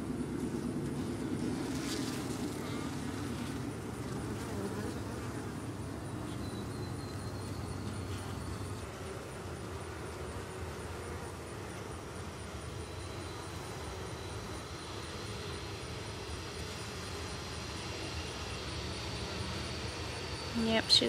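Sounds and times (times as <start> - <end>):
honeybees droning: 0.0 - 21.0.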